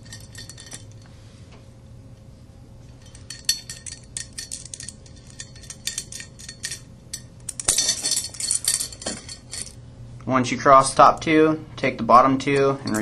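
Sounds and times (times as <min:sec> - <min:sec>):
metal spokes clinking: 0:00.0 - 0:01.0, 0:02.9 - 0:09.8, 0:12.5 - 0:13.0
faint steady hum: 0:00.0 - 0:13.0.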